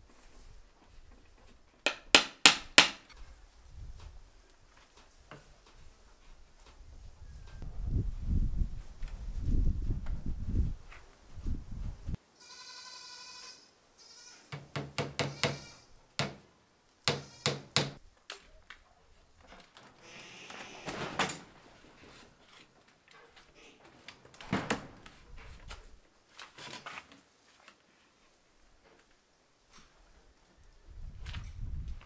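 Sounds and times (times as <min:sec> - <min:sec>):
livestock bleating: 0:12.4 - 0:14.5, 0:15.3 - 0:16.0, 0:17.2 - 0:17.6, 0:20.0 - 0:20.9.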